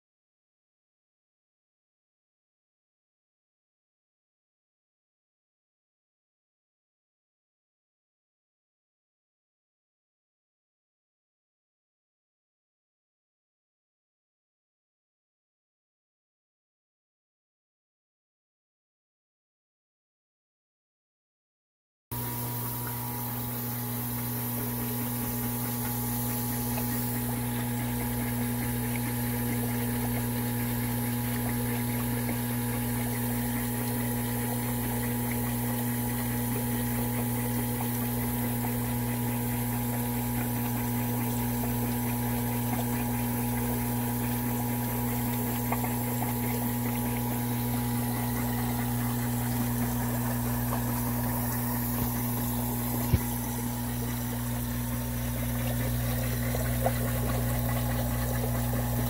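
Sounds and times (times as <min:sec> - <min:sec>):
aquarium pump hum: 0:22.1 - 0:59.0
hiss of moving water: 0:22.6 - 0:27.5.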